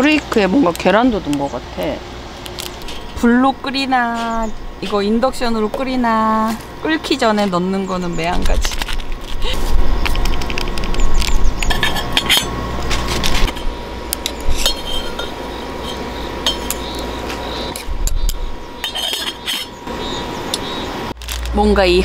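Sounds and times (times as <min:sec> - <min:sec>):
metal utensil scraping a pot: 0:02.8 - 0:03.2, 0:11.6 - 0:17.0, 0:18.8 - 0:19.8
metal pot lid clanking: 0:11.6 - 0:12.5, 0:14.5 - 0:17.0, 0:18.8 - 0:19.8.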